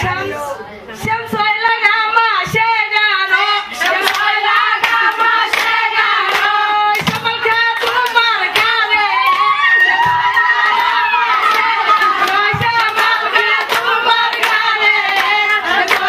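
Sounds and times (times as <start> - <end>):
women singing in unison: 0.0 - 16.0
hand clapping: 3.8 - 16.0.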